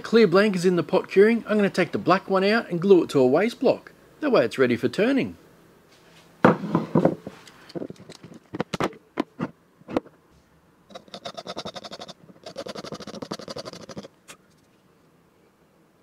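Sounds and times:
glue sputtering from bottle nozzle: 0:10.9 - 0:14.1.

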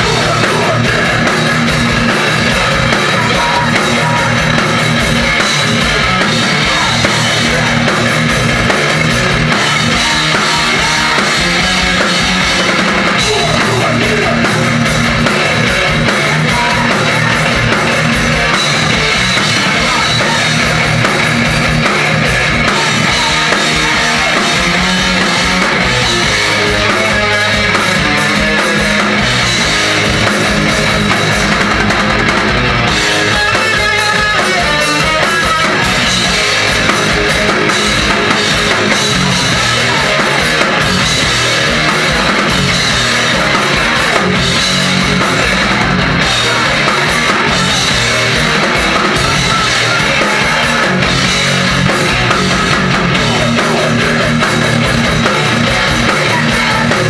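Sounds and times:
bass guitar: 0:00.0 - 0:57.0
distorted electric guitars: 0:00.0 - 0:57.0
fast driving drums: 0:00.0 - 0:57.0.

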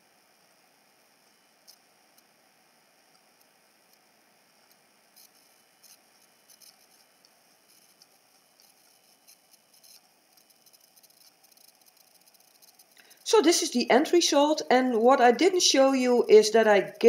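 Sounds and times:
faint hiss: 0:00.0 - 0:17.0
soft high-pitched ticks: 0:03.1 - 0:13.2.

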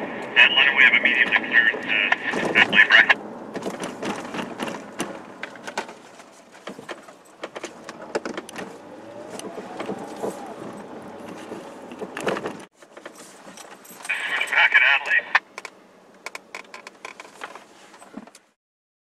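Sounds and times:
car road noise from inside: 0:00.0 - 0:18.4
clicks knocks and rattles: 0:03.5 - 0:14.1, 0:15.6 - 0:17.6.

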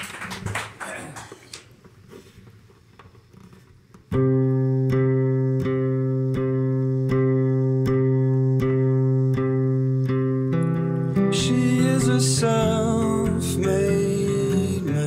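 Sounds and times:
acoustic guitar strumming: 0:04.1 - 0:15.0.

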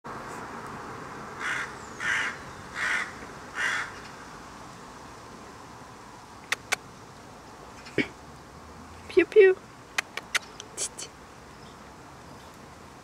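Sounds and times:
crow cawing: 0:01.4 - 0:04.0
sharp clicks: 0:06.4 - 0:06.8, 0:10.0 - 0:10.8.

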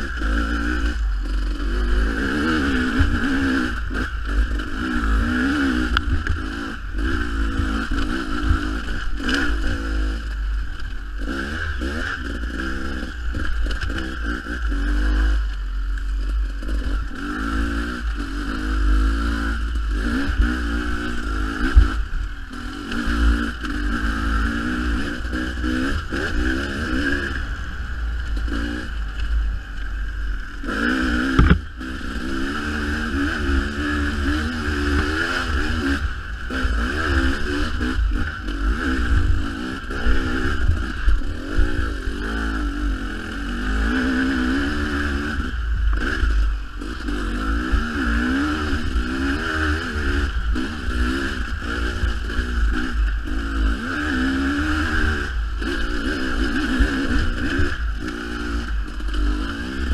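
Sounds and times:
dirt bike engine revving: 0:00.0 - 0:59.9
sharp knocks from bike: 0:31.2 - 0:31.7.

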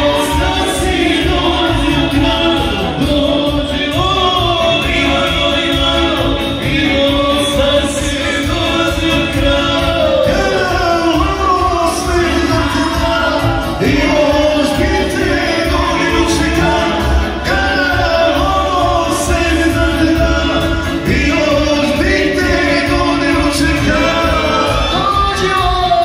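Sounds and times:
folk band playing dance music: 0:00.0 - 0:26.0
man singing into microphone: 0:00.0 - 0:26.0.

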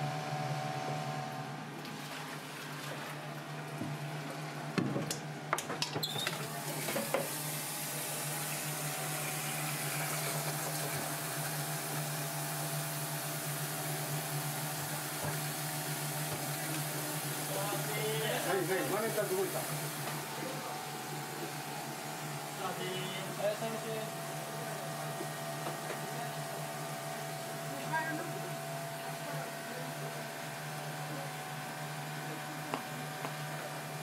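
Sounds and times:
kitchen equipment hum: 0:00.0 - 0:34.0
tap water running into saucepan: 0:06.3 - 0:12.2, 0:13.7 - 0:20.3.

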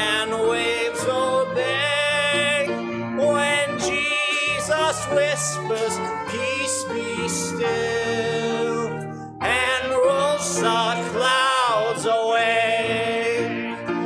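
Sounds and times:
man singing into a microphone: 0:00.0 - 0:13.9
instrumental accompaniment: 0:00.0 - 0:14.0
congregation singing a hymn: 0:03.7 - 0:13.8.

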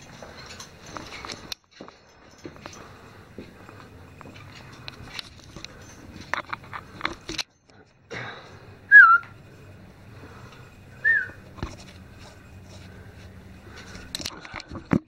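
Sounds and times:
short pitch-bending whistles: 0:08.9 - 0:09.3, 0:11.0 - 0:11.4.

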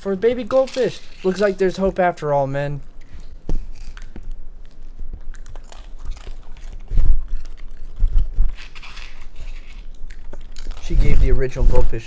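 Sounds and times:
raccoon crunching crackers: 0:03.0 - 0:11.6.

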